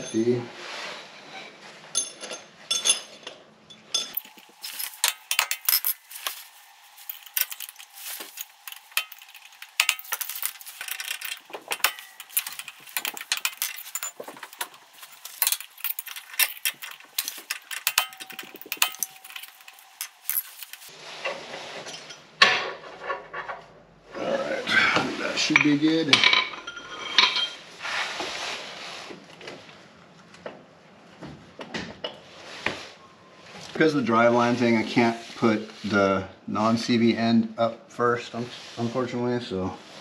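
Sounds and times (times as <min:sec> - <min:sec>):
hand tools clinking on metal: 0:02.0 - 0:20.9.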